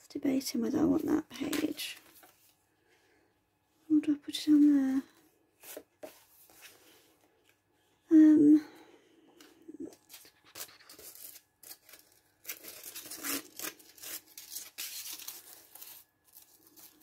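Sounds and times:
paper rustling: 1.0s - 2.6s, 9.9s - 17.0s
aluminium foil crinkling: 10.0s - 17.0s.

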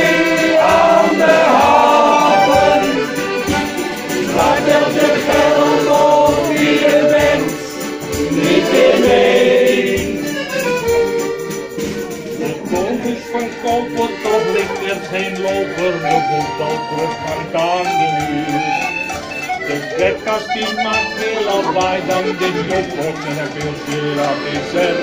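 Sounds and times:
men's choir singing in unison: 0.0s - 10.6s, 20.5s - 25.0s
steady beat: 0.0s - 25.0s.

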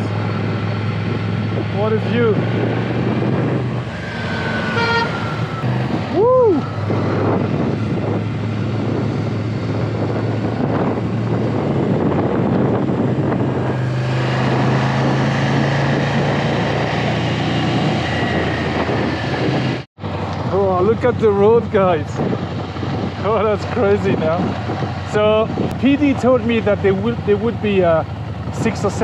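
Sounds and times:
motorcycle engine running: 0.0s - 29.0s
road and wind noise: 0.0s - 29.0s
person shouting woo: 6.1s - 6.8s.

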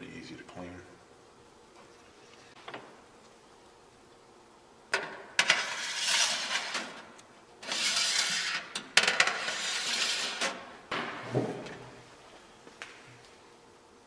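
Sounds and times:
metal rack scraping on rails: 5.4s - 7.0s, 7.6s - 10.7s.

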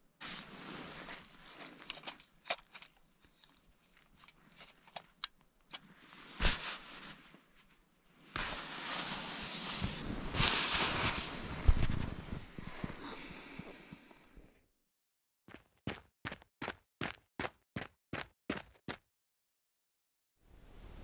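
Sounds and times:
rustling of handled gear: 0.2s - 7.8s.

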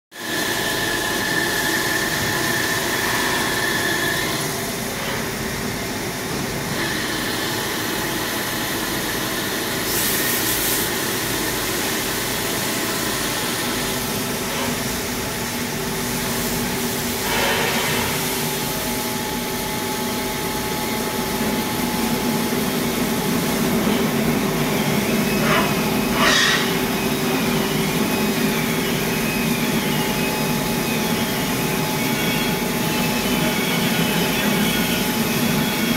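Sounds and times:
lathe machine hum: 0.2s - 9.8s, 10.9s - 35.9s
coolant spray hissing: 9.8s - 19.6s.

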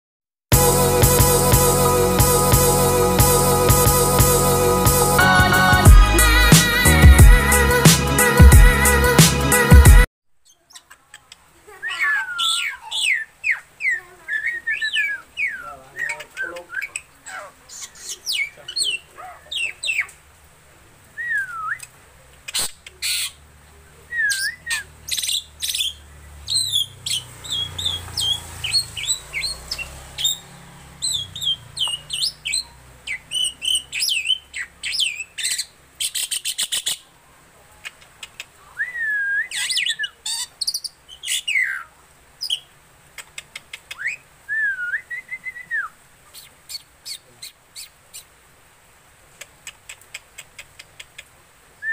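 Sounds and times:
myna singing: 0.5s - 10.1s.

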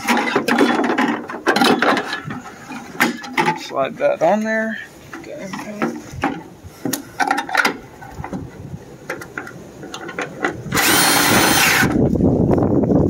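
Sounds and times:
clicks and knocks of tool handling: 0.0s - 3.6s, 5.1s - 8.4s
wind rumble on microphone: 5.9s - 13.0s
impact driver running: 10.7s - 12.0s.

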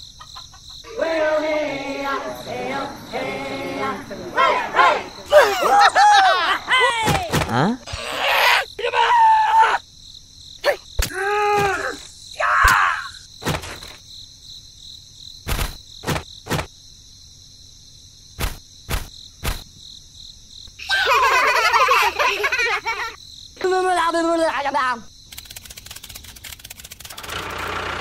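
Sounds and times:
crickets chirring: 0.0s - 27.9s
squeaky cartoon character voices: 6.7s - 9.0s.

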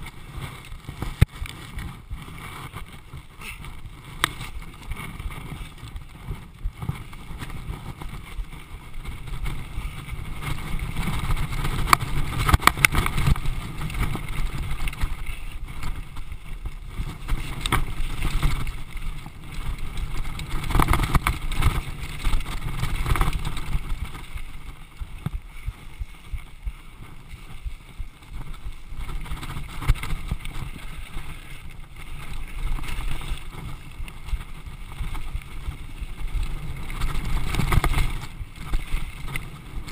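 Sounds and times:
mountain bike rattling on rocks: 0.0s - 39.9s
wind buffeting microphone: 0.0s - 39.9s.

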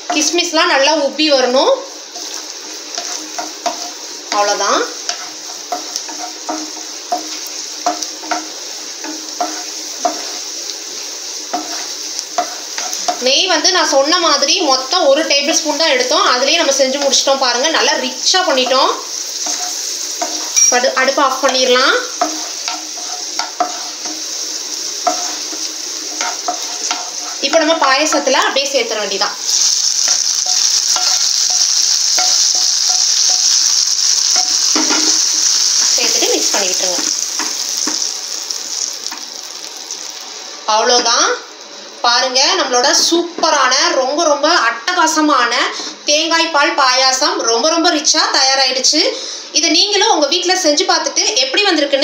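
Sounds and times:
nuts sizzling in a pan: 0.0s - 52.0s
wooden spatula scraping pan: 2.2s - 10.5s, 11.5s - 13.3s, 18.5s - 20.6s, 21.3s - 28.5s.

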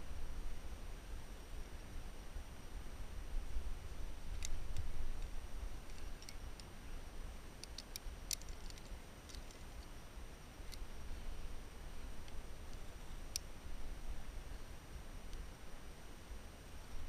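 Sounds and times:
carabiners clicking and clinking: 7.6s - 9.9s.

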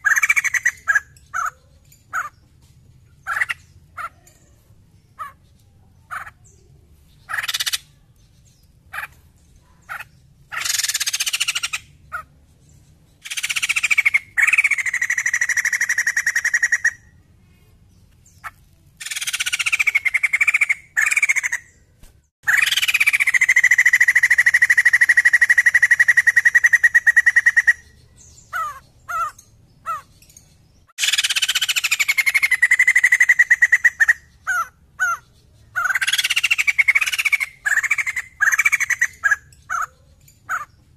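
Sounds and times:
bird long rattling calls: 0.0s - 2.4s, 3.2s - 4.4s, 7.3s - 8.0s, 9.8s - 12.3s, 13.2s - 17.1s, 18.4s - 21.8s, 22.4s - 40.8s.

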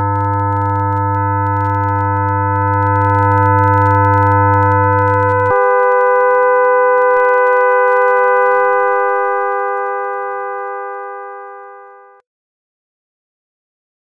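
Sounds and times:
steady electronic tones: 0.0s - 12.2s
faint clicks: 0.1s - 11.0s.

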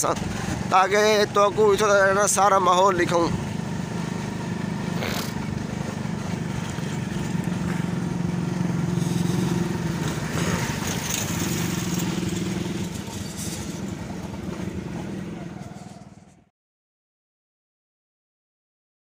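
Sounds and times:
small engine running: 1.8s - 16.3s.

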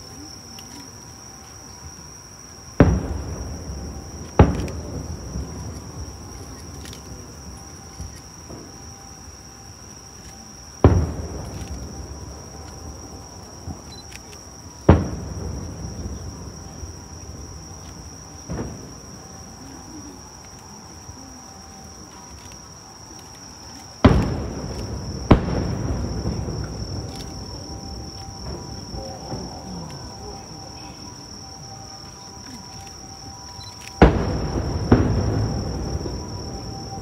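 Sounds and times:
high insect drone: 0.0s - 37.0s
distant firework booms: 2.8s - 6.5s, 10.8s - 13.9s, 14.8s - 17.8s, 18.4s - 19.4s, 24.0s - 30.7s, 34.0s - 37.0s.

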